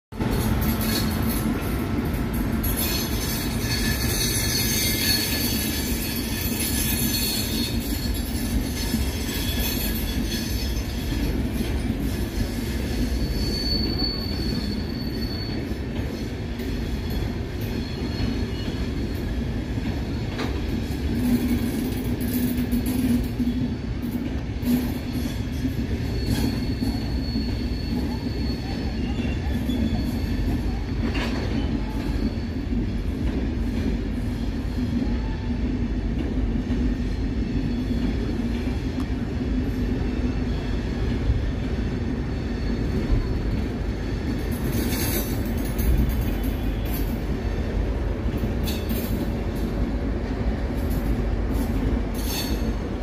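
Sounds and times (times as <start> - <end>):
train wheels rumbling on rails: 0.1 - 53.0
high wheel squeal: 2.6 - 19.3, 24.8 - 32.8, 42.3 - 43.8, 51.6 - 52.9.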